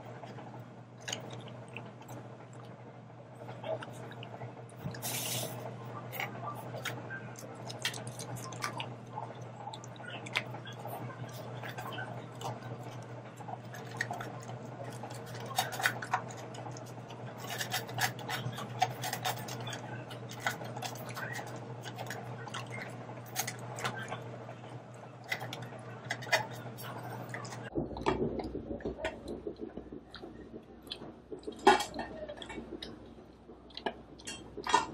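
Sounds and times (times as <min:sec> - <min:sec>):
low hum: 0:00.0 - 0:34.9
dog crunching kibble in metal bowl: 0:06.8 - 0:08.8, 0:13.6 - 0:24.1, 0:25.2 - 0:28.3.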